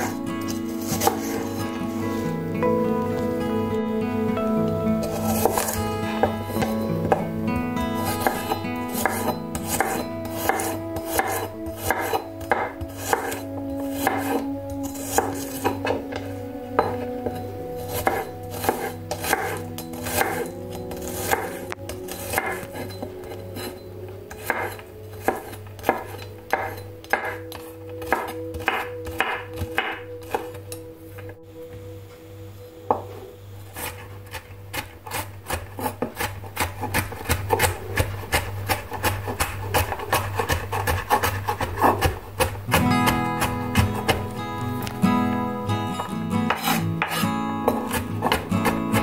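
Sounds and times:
knife chopping on wooden board: 0:00.9 - 0:01.4, 0:08.2 - 0:16.0, 0:18.0 - 0:20.4, 0:21.0 - 0:22.8, 0:24.4 - 0:30.5, 0:33.8 - 0:44.3, 0:46.5 - 0:49.0.

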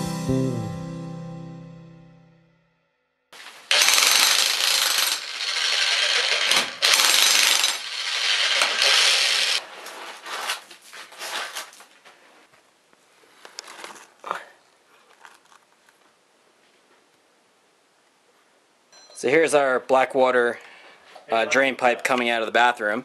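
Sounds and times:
demolition hammer chiselling concrete: 0:03.7 - 0:09.6.

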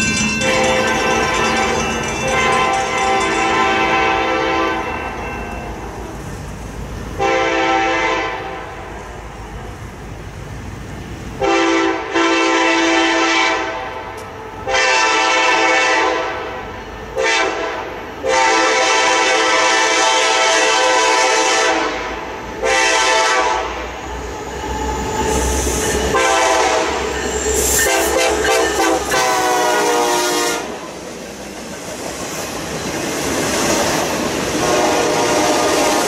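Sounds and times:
train rumble: 0:00.0 - 0:36.0
locomotive air horn blasts: 0:00.4 - 0:05.2, 0:07.2 - 0:08.8, 0:11.4 - 0:16.6, 0:17.2 - 0:24.0, 0:26.0 - 0:30.8, 0:34.6 - 0:36.0.

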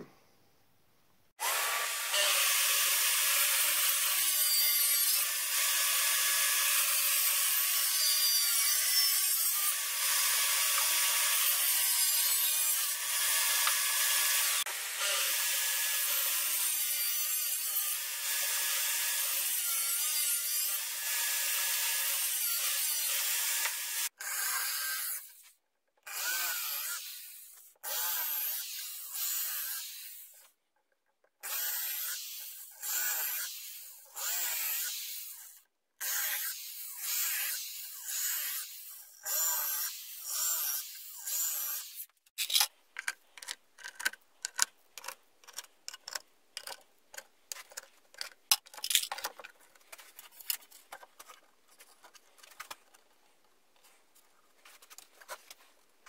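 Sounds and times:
cordless drill into plywood: 0:01.4 - 0:08.2
power tools working wood: 0:01.4 - 0:25.2.

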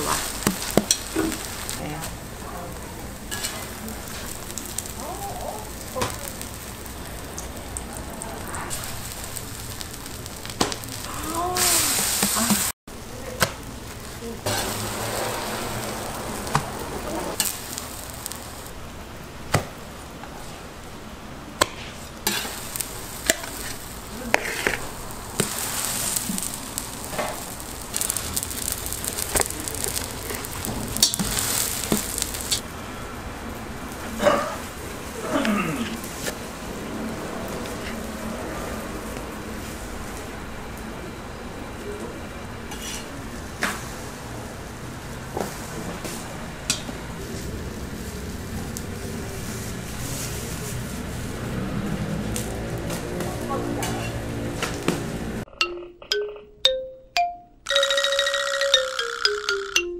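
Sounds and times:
pancakes sizzling in oil: 0:00.0 - 0:18.8, 0:21.7 - 0:32.7
metal spatula scraping pan: 0:03.3 - 0:04.3, 0:22.3 - 0:22.6, 0:23.2 - 0:25.6.

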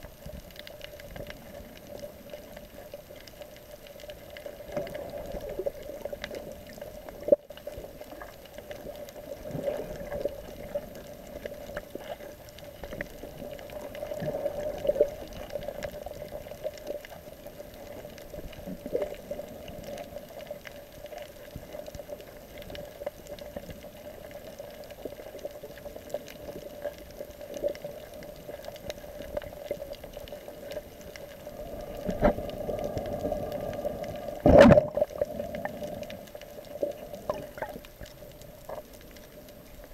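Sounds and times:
faint clicks and knocks: 0:00.0 - 0:39.9
muffled underwater wash: 0:00.0 - 0:39.9.

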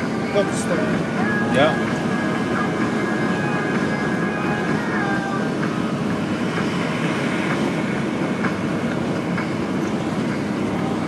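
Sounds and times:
train running noise: 0:00.0 - 0:11.0.

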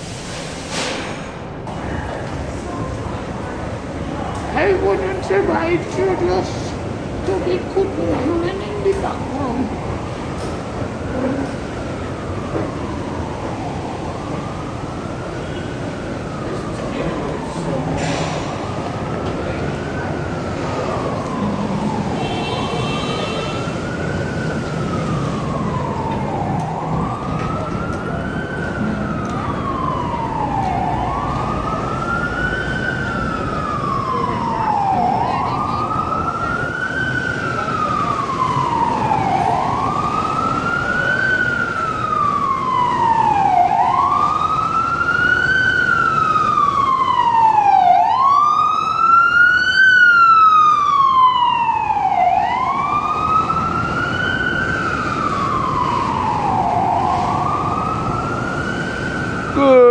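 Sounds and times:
city traffic noise: 0:00.0 - 0:59.9
emergency siren wailing: 0:01.7 - 0:59.9.

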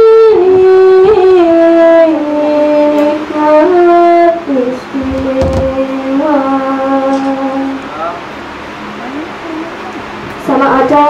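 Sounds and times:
woman singing into microphone: 0:00.0 - 0:07.8, 0:10.4 - 0:11.0.

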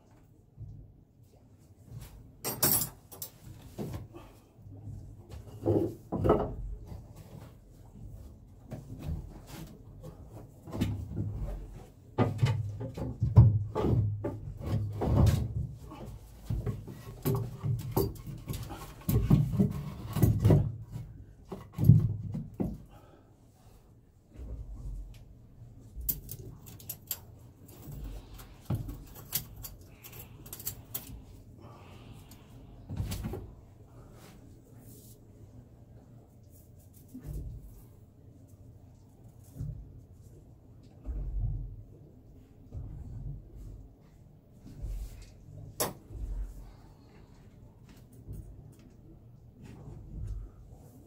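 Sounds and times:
metallic clicks and clinks: 0:26.0 - 0:27.8, 0:29.0 - 0:31.1.

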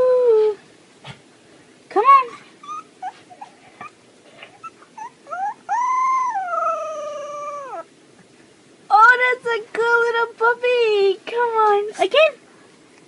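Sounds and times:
puppy howling: 0:02.6 - 0:03.5, 0:04.6 - 0:07.9
puppy whimpering: 0:02.6 - 0:07.9.

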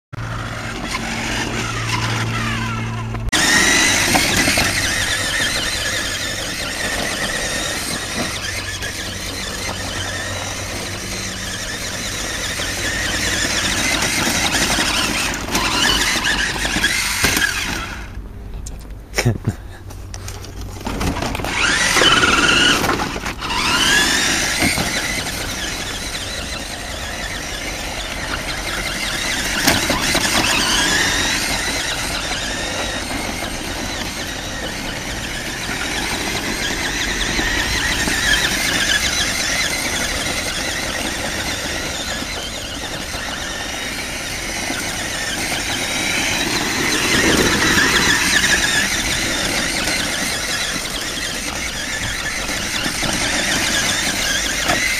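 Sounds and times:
toy truck motor whining: 0:00.2 - 0:18.2, 0:20.1 - 0:54.9.

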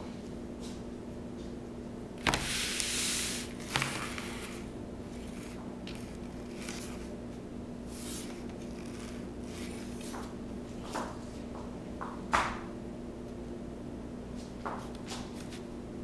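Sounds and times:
loud scraping hiss: 0:02.3 - 0:04.7.

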